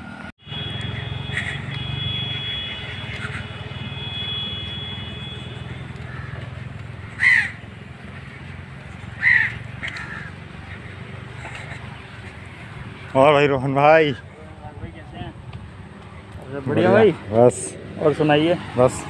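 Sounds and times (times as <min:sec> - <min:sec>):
low engine rumble: 0:00.0 - 0:19.0
crow cawing: 0:06.0 - 0:10.9.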